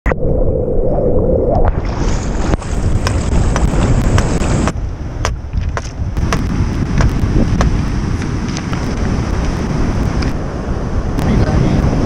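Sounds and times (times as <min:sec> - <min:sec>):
wind buffeting microphone: 0:00.4 - 0:12.0
surf rushing: 0:01.5 - 0:04.8, 0:06.2 - 0:12.0
rock knocking on wooden stake: 0:03.0 - 0:08.8.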